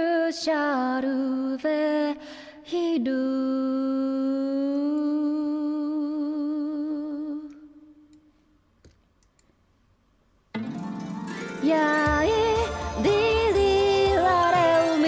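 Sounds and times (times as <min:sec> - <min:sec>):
woman singing a long note: 0:11.6 - 0:15.0.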